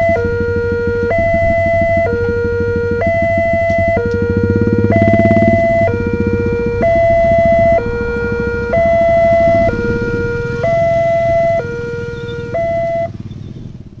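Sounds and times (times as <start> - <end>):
two-tone crossing alarm: 0.0 - 13.3
low rumble: 0.0 - 14.0.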